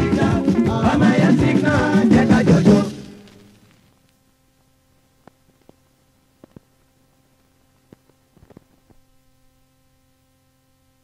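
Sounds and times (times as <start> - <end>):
vinyl record surface noise: 0.0 - 11.0
vinyl clicks and pops: 2.8 - 4.2, 5.2 - 9.1.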